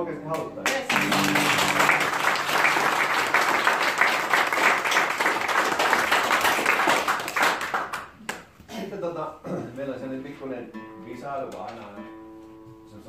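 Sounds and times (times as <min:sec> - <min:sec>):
audience applauding: 0:00.4 - 0:08.5.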